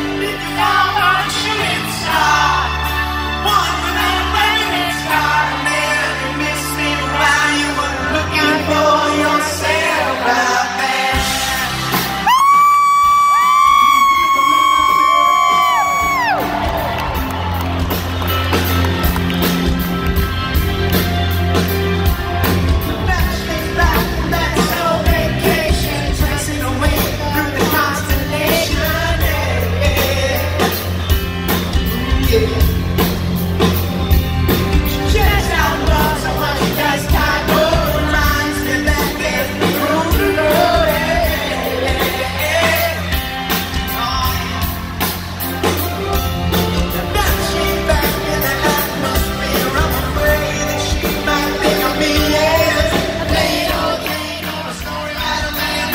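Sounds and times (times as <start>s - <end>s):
man singing: 0.0s - 16.8s, 22.7s - 33.6s, 34.6s - 55.9s
bass guitar: 0.0s - 55.9s
drums: 0.0s - 55.9s
electric guitar: 11.2s - 55.9s.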